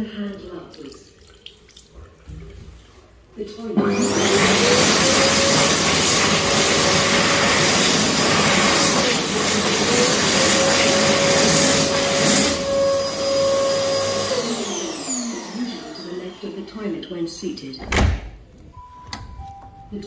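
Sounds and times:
hand dryer blowing air: 3.8s - 17.0s
hand dryer motor whine: 3.8s - 17.1s.

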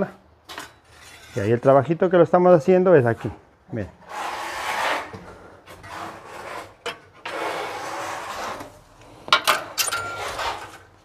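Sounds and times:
scraping on hard surface: 0.8s - 1.8s, 4.0s - 9.2s, 9.9s - 10.9s.

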